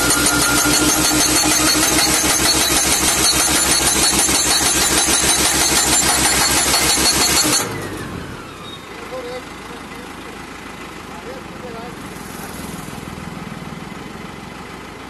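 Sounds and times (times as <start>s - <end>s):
hydraulic hammer pounding steel post: 0.0s - 8.0s
machine engine running: 0.0s - 9.4s.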